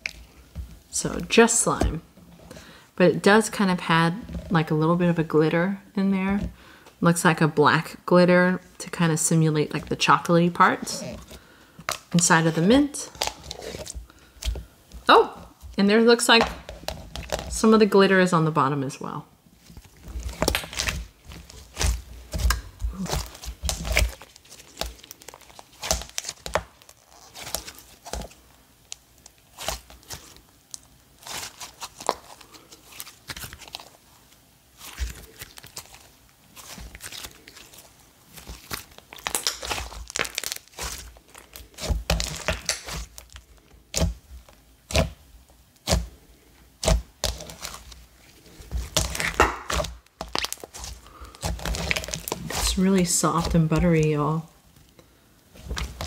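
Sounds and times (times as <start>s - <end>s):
clay slime popping and crackling: 9.7s - 17.7s, 19.7s - 33.9s, 34.8s - 54.5s, 55.4s - 56.0s.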